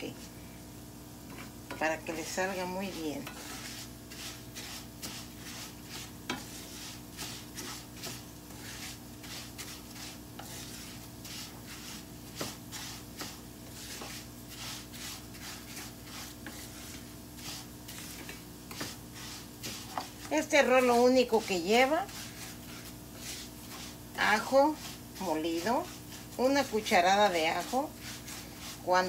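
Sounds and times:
light sizzle: 0.0 - 29.0
spatula scraping rice in pan: 1.3 - 29.0
spatula tapping pan: 2.9 - 14.3, 14.9 - 19.0.

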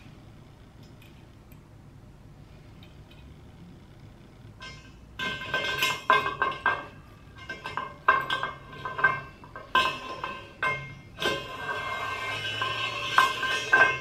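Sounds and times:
metal profiles knocking and scraping: 4.4 - 14.0.

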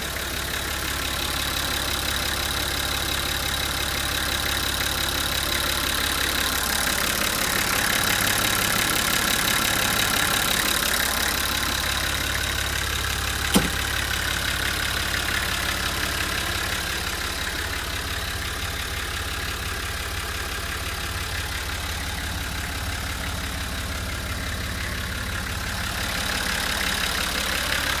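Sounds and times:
diesel engine idling: 0.0 - 28.0
sharp click: 13.6 - 13.9.

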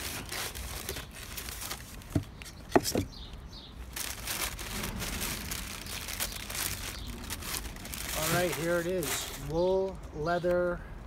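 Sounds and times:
tissue paper rustling: 0.0 - 2.2, 3.9 - 9.5.

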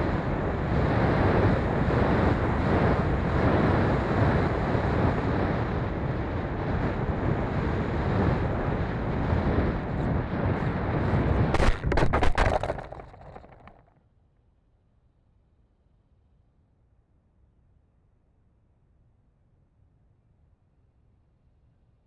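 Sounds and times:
knocks and scrapes of crash landing: 11.5 - 13.8.

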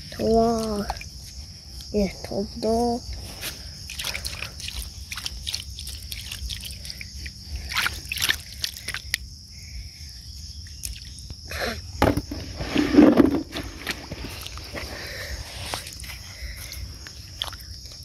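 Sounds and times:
crickets chirping: 0.0 - 18.0
hands splashing in shallow water: 7.7 - 9.2.

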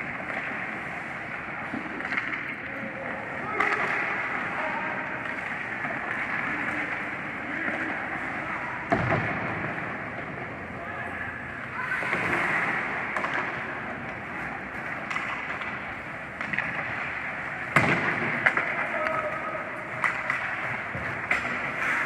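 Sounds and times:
skate blades scraping ice: 0.0 - 2.6, 11.7 - 22.0
hockey sticks clacking: 0.0 - 22.0.

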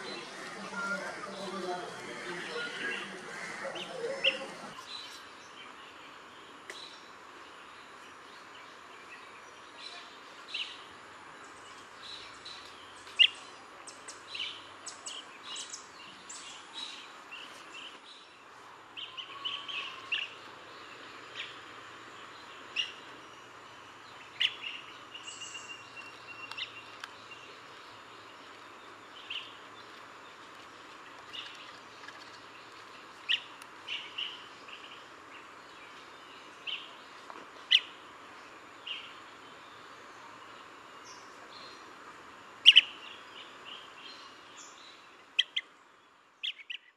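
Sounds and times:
bird chirping calls: 0.0 - 5.2, 42.6 - 45.7, 46.4 - 46.9
steady background hiss: 0.0 - 46.9.

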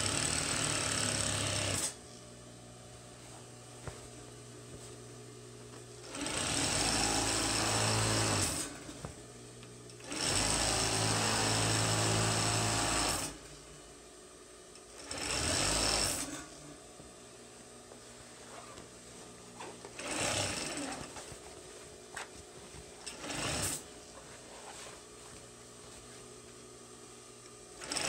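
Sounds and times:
sewing machine stitching: 0.0 - 2.0, 6.0 - 8.8, 10.0 - 13.4, 15.0 - 16.4, 19.9 - 21.2, 23.0 - 23.9, 27.8 - 28.0.

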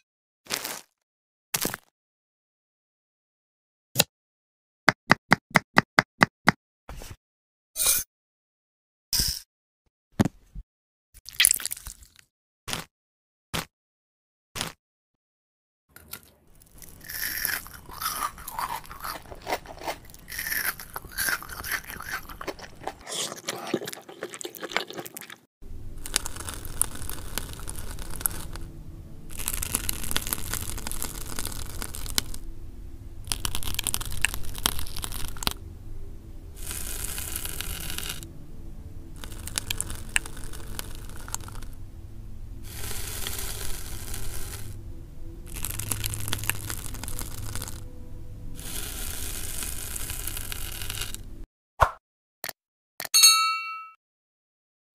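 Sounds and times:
chocolates crunching as cut: 0.5 - 1.0, 11.3 - 12.9, 14.6 - 14.8, 16.0 - 25.4, 26.0 - 28.7, 29.3 - 32.4, 33.3 - 35.6, 36.6 - 38.2, 39.2 - 41.7, 42.7 - 44.8, 45.5 - 47.8, 48.6 - 51.2.

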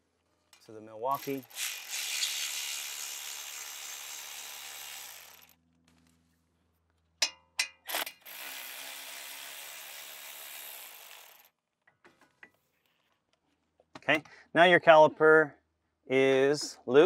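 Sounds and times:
cordless ratchet running: 1.1 - 5.6, 7.9 - 11.5.

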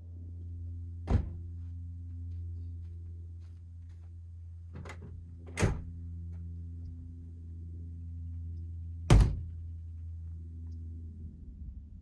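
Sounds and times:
truck tailgate slamming: 1.0 - 1.4, 9.1 - 9.5.

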